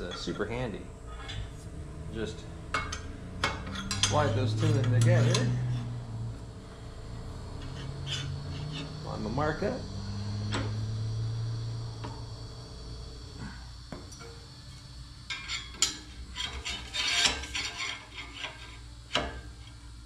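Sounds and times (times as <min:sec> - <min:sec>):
sharp metal clank: 0:02.7 - 0:05.8
steel rod clinking and scraping: 0:02.8 - 0:06.0, 0:07.5 - 0:09.0, 0:15.3 - 0:19.5.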